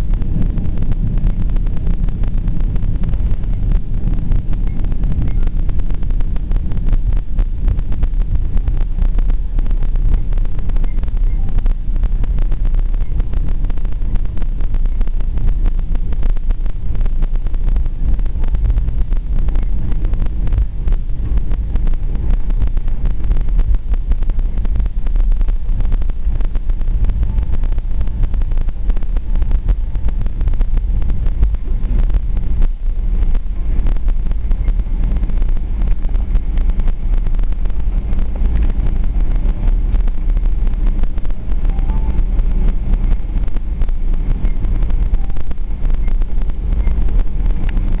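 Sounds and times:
airliner cabin rumble: 0.0s - 48.0s.

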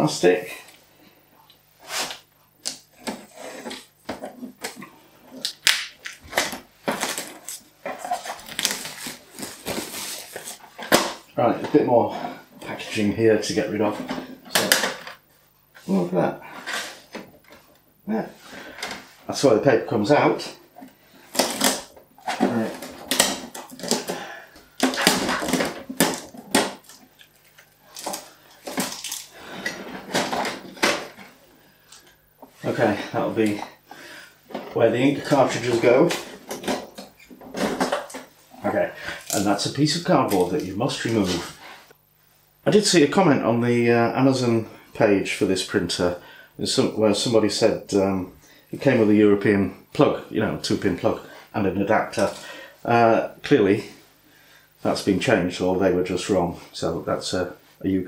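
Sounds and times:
packing tape ripping: 5.4s - 11.1s, 21.3s - 21.9s, 22.5s - 24.2s, 24.8s - 27.0s, 27.9s - 29.4s
plastic film crinkling: 5.4s - 11.2s.

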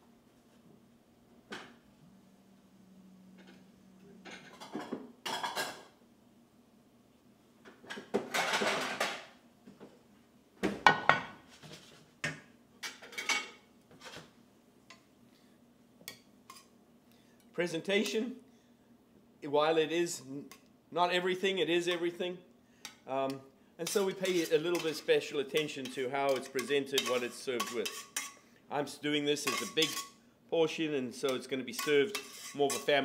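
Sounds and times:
utensils and plate clattering: 23.9s - 28.4s, 29.4s - 30.2s, 31.3s - 33.0s.

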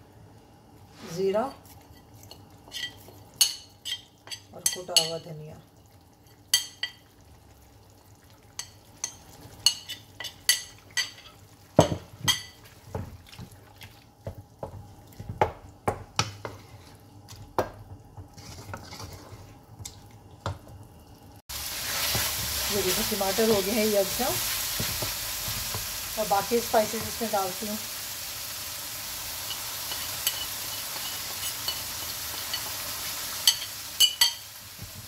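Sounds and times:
loud frying sizzle: 0.0s - 35.0s
spatula scraping a metal pan: 18.4s - 19.6s.

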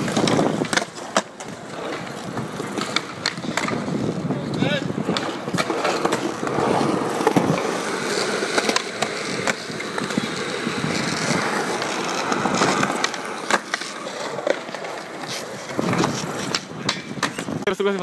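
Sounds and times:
skateboard clacking on ground: 0.0s - 18.0s
skateboard wheels rolling on concrete: 0.0s - 18.0s.

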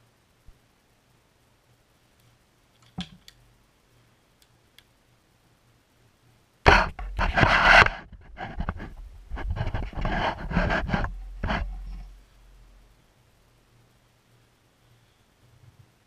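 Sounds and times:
rubbing and scraping on microphone: 6.7s - 12.8s.

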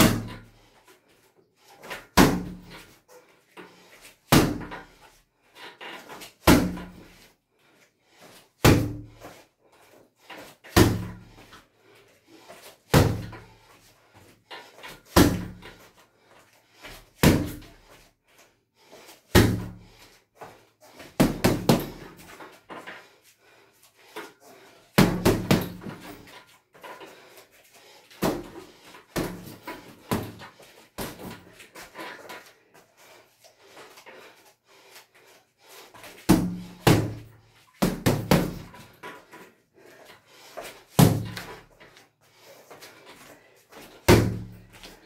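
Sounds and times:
punching bag thuds: 25.0s - 26.2s, 41.0s - 41.6s, 44.1s - 44.6s.

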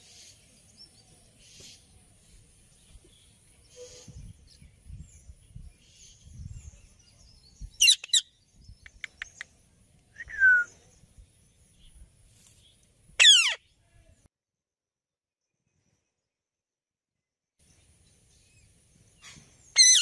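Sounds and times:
parakeets screeching: 7.8s - 8.2s, 13.2s - 13.6s, 19.8s - 20.0s.

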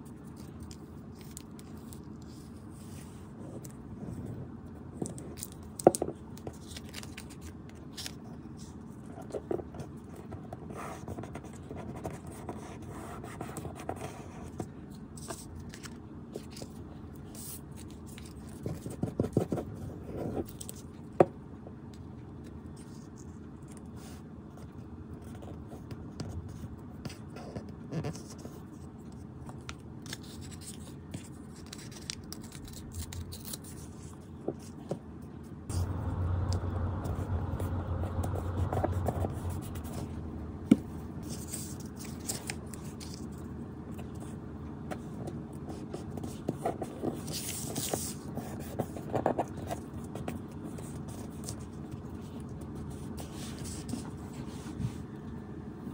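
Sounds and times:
paper rustling and scraping: 13.6s - 21.0s, 25.2s - 35.0s, 35.7s - 44.4s, 45.0s - 55.1s.

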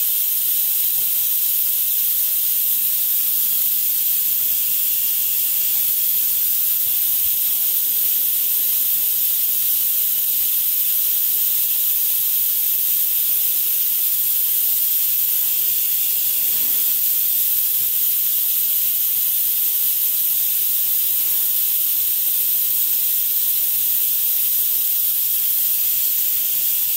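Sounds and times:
machine loud steady hiss: 0.0s - 26.9s.

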